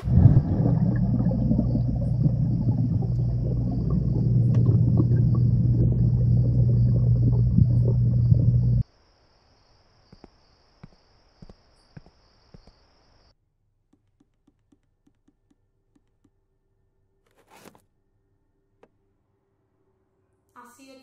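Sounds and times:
deep underwater rumble: 0.0 - 8.8
low hum: 0.0 - 8.8
sun visor pulled down: 17.3 - 17.8.

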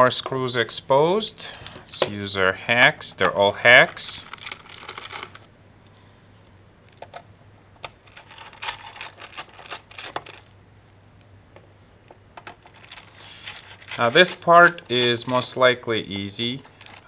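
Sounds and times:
faint low hum: 0.0 - 17.0
hands handling plastic laptop case: 12.4 - 15.5.

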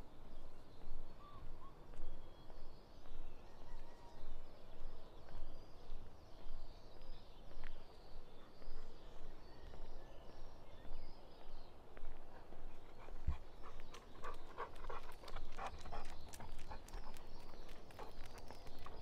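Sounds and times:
dog panting: 12.4 - 19.0.

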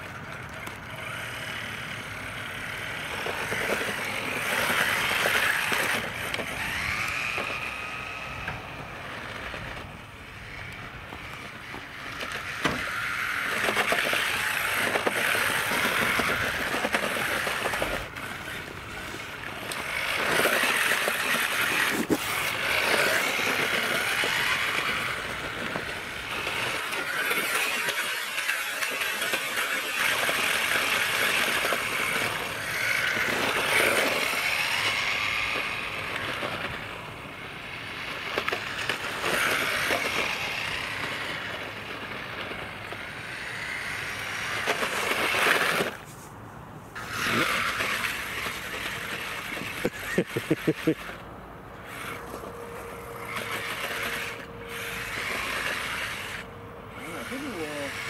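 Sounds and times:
rc car electric motor whining: 0.0 - 58.0.

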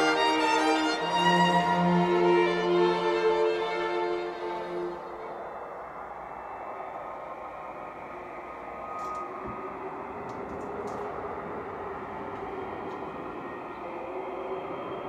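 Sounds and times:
dense rumbling noise: 5.2 - 15.0.

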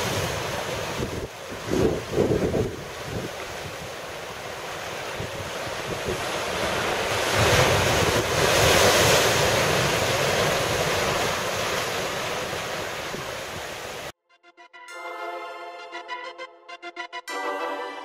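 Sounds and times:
wind buffeting microphone: 0.0 - 4.0.

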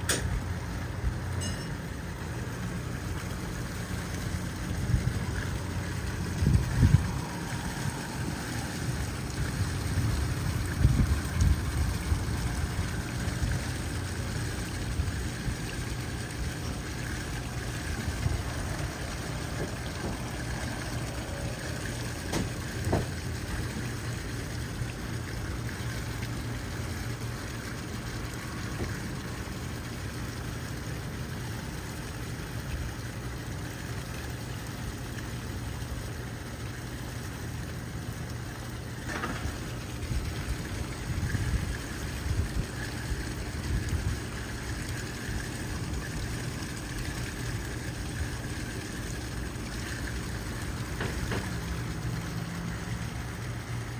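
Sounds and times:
water lapping and sloshing: 0.0 - 53.9
steady low rumble: 2.3 - 16.2.

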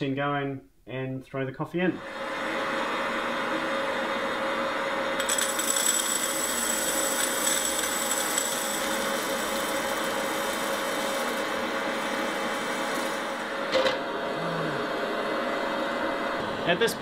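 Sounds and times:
popcorn maker fan whirring: 2.0 - 17.0
coffee beans rattling: 5.2 - 13.3.

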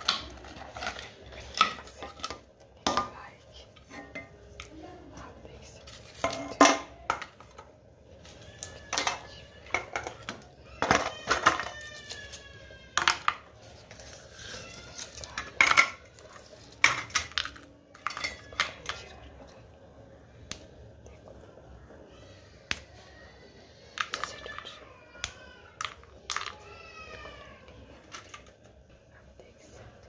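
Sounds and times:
pieces clattering onto a steel plate: 6.2 - 7.6, 8.9 - 11.7, 15.4 - 16.1, 16.8 - 19.0.

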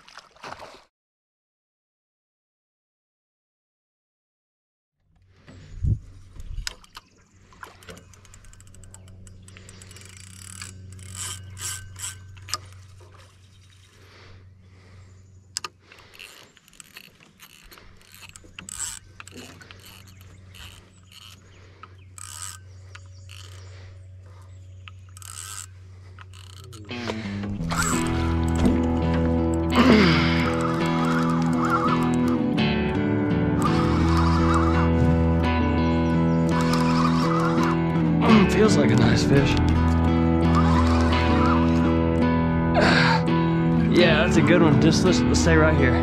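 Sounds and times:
fishing reel ratcheting and clicking: 6.6 - 14.0, 15.5 - 26.9, 27.5 - 32.6, 33.6 - 42.3.

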